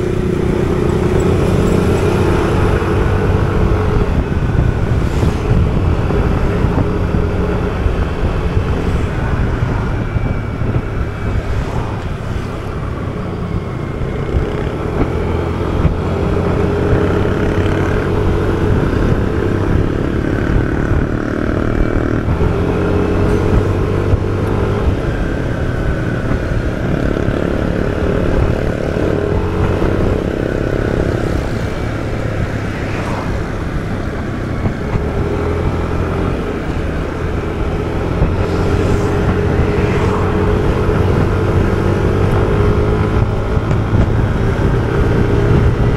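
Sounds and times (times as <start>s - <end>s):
scooter engine running: 0.0s - 8.6s.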